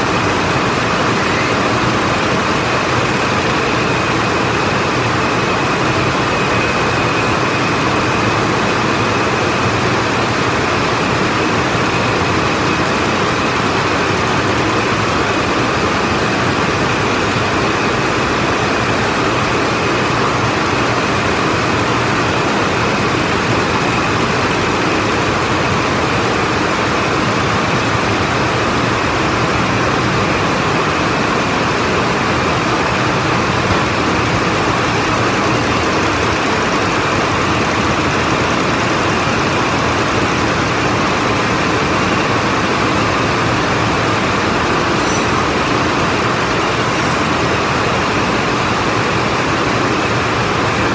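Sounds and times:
weaving looms running: 0.0 - 50.9
faint steady high tone: 44.8 - 47.6.

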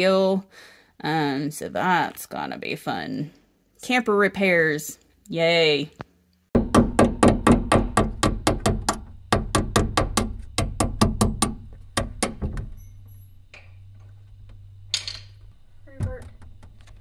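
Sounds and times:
hammer tapping rapidly: 6.6 - 12.4.

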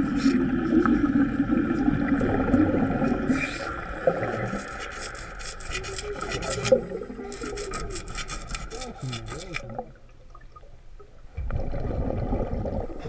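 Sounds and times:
underwater air bubbles rushing: 0.0 - 4.7, 11.3 - 13.0.

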